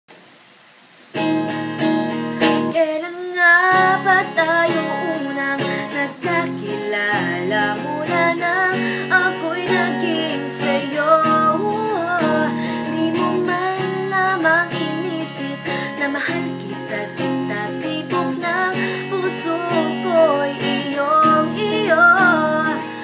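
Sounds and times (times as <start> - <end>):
guitar strumming: 1.1 - 23.0
woman singing: 2.6 - 23.0.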